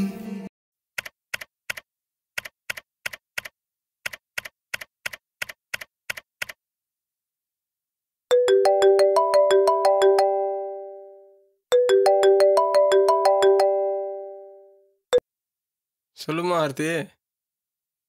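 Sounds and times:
keyboard key clicks: 1.0 - 6.6.

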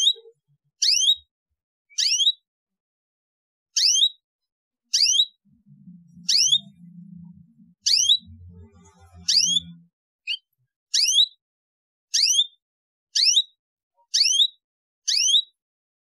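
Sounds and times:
canary chirping: 0.0 - 1.3, 1.9 - 2.5, 3.8 - 4.2, 4.9 - 11.4, 12.1 - 12.6, 13.2 - 15.6.

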